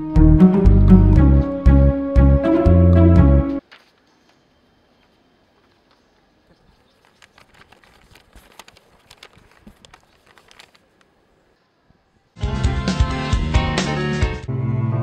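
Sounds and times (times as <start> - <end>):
paper flyers crackling and rustling: 3.6 - 4.4, 5.6 - 11.4.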